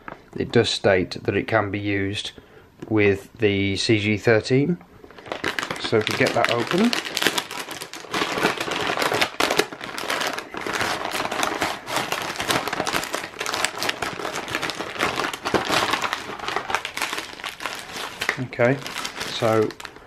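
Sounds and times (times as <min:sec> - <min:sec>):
plastic bag crinkling: 0:05.0 - 0:20.0.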